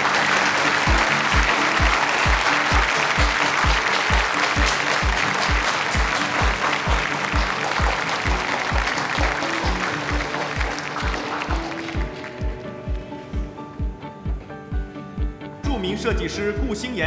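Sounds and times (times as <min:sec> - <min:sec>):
audience applauding: 0:00.0 - 0:13.4
music with deep beat: 0:00.7 - 0:15.4.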